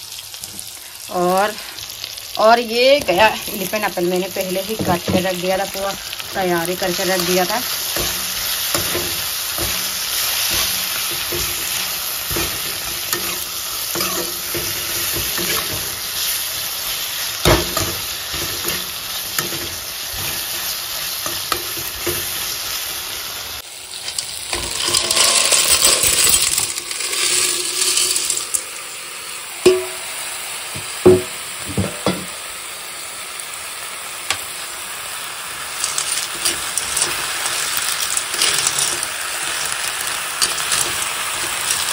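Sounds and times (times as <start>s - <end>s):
vegetables sizzling in hot oil: 0.0s - 41.9s
ladle scraping a wok: 7.0s - 16.4s, 23.9s - 28.6s, 35.8s - 41.9s.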